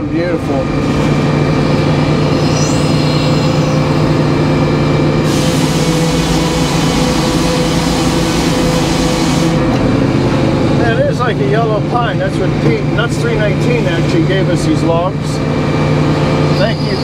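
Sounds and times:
power unit droning: 0:00.0 - 0:17.0
circular saw blade spinning: 0:01.5 - 0:09.6
saw cutting wood hiss: 0:05.2 - 0:09.6.

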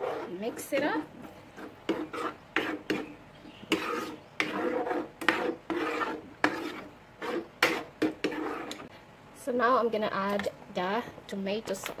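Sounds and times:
spoon scraping in frying pan: 0:00.0 - 0:08.9.

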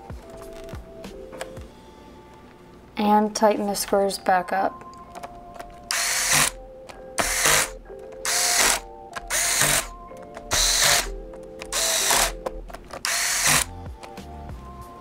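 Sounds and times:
electric screwdriver whirring: 0:05.9 - 0:06.6, 0:07.2 - 0:13.8.

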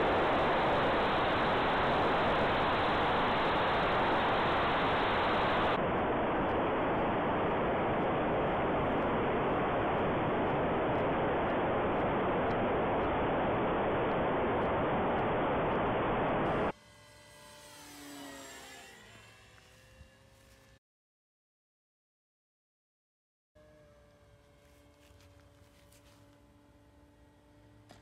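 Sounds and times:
air rush and propeller noise: 0:00.0 - 0:16.8
distant electric motor whine: 0:00.0 - 0:20.8.

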